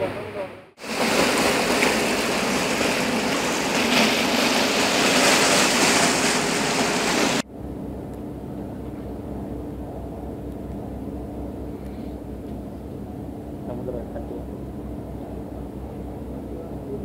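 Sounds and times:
boat engine drone: 0:00.0 - 0:17.0
water and wind rushing: 0:00.8 - 0:07.4.

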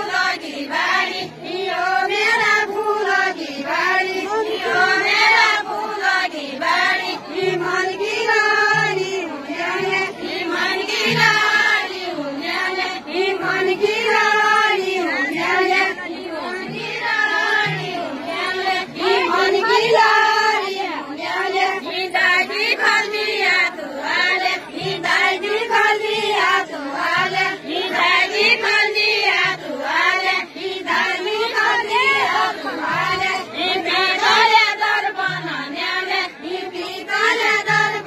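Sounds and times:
women singing folk song: 0:00.0 - 0:38.0.

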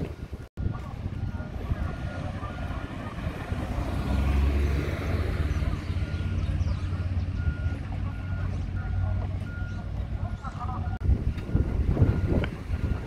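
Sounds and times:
large vehicle engine humming: 0:00.0 - 0:13.0.

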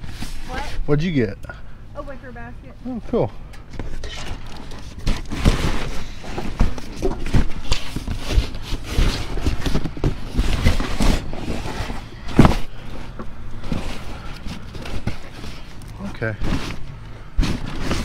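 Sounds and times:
trash knocking and rustling: 0:03.7 - 0:18.0.

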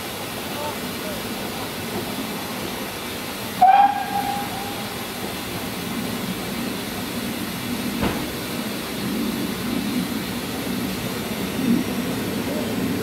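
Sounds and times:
train engine and wheels rumbling: 0:00.0 - 0:13.0
short knock: 0:08.0 - 0:08.3.

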